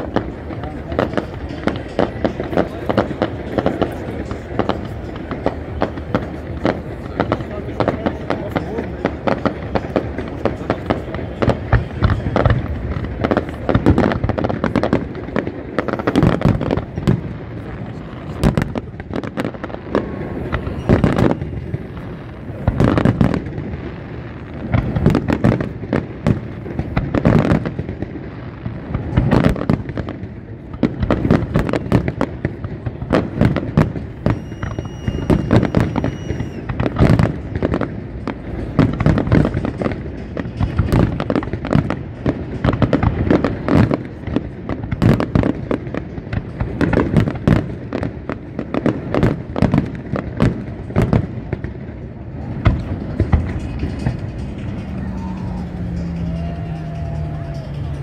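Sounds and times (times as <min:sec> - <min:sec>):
fireworks bursts and crackle: 0:00.0 - 0:58.0
steady high whistle: 0:34.2 - 0:36.7.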